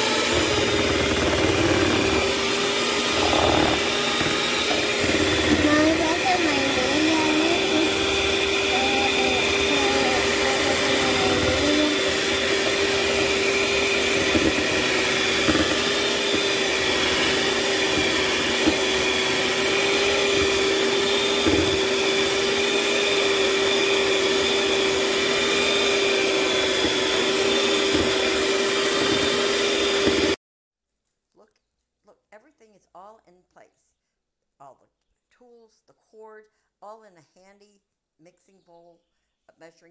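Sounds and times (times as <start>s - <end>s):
electric hand mixer motor whining: 0.0s - 30.4s.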